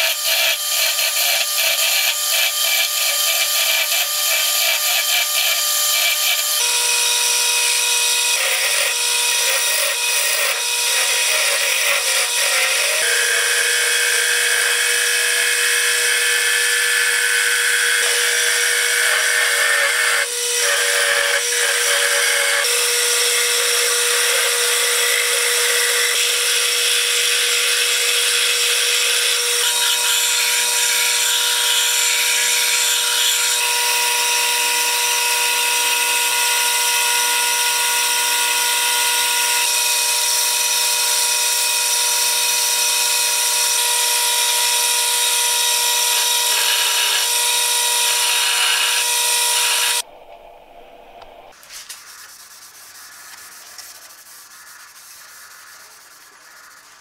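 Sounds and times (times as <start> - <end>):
file rubbing on wood: 0.0 - 6.5, 8.3 - 39.7, 45.2 - 50.0
handsaw cutting wood: 0.0 - 50.0
wood lathe whining: 0.0 - 50.1
chisel cutting wood shavings: 0.0 - 50.4.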